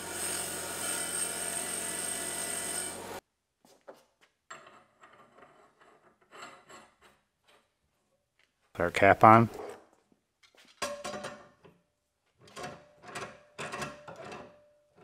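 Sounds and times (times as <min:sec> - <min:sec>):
power tool whining: 0:00.0 - 0:03.2.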